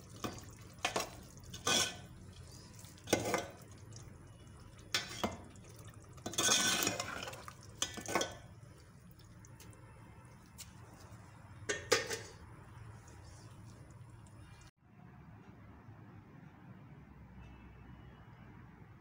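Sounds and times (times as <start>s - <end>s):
metal spoon scraping pot: 0.2s - 3.6s, 6.2s - 8.5s, 11.7s - 12.4s.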